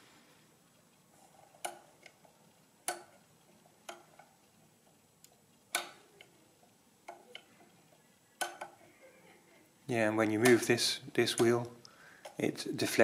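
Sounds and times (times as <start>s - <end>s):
adding machine mechanism clicking: 1.4s - 8.8s.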